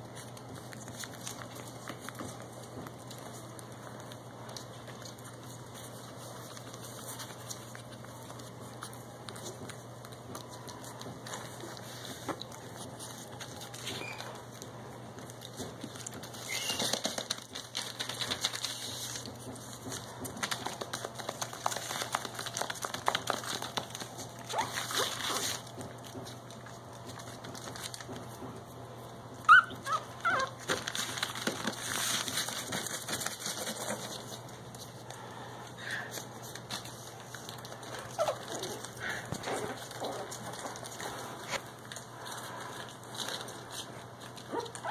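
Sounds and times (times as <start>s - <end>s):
newspaper crinkling and rustling: 0.0s - 28.8s, 29.4s - 35.4s, 36.1s - 44.9s
puppy squeaking: 13.8s - 14.4s, 16.4s - 17.1s, 24.5s - 25.1s, 29.4s - 30.6s, 38.1s - 38.8s.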